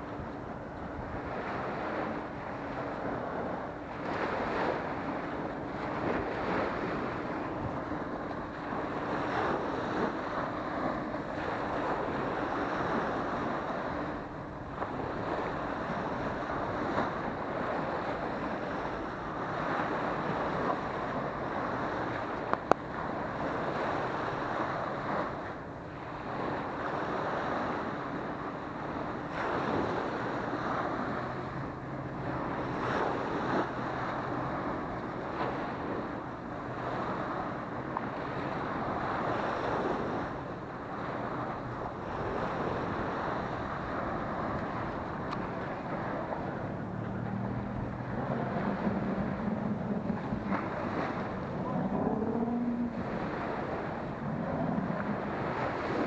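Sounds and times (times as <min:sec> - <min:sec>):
wind buffeting microphone: 0:00.0 - 0:56.0
surf breaking on beach: 0:26.2 - 0:56.0.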